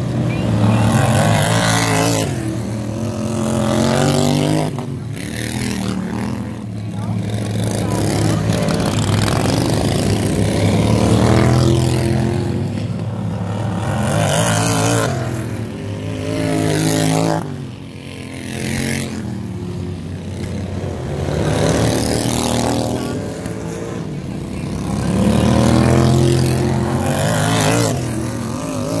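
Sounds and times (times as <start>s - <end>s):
racing lawn mower engines passing: 0.0s - 29.0s.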